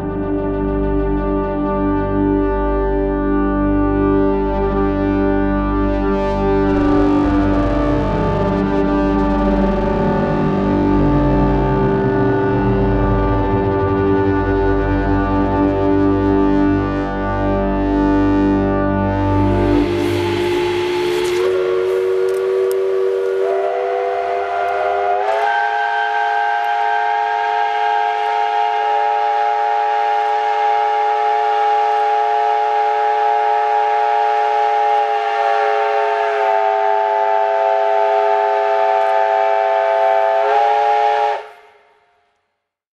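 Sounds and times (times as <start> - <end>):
steam locomotive chime whistle: 19.2 - 41.8
steam hiss: 19.4 - 28.9.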